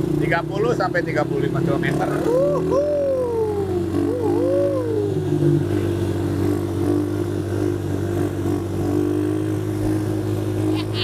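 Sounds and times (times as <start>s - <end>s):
atv engine running: 0.0s - 11.0s.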